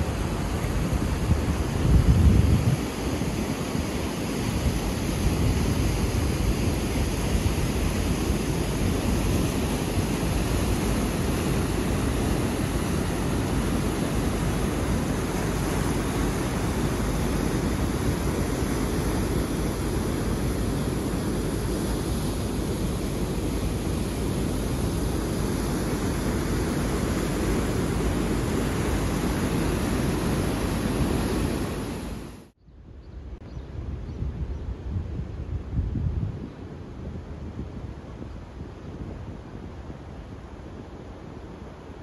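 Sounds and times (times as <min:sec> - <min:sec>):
wind buffeting microphone: 0:00.0 - 0:32.3, 0:32.9 - 0:41.0
water rushing through rapids: 0:00.0 - 0:32.4.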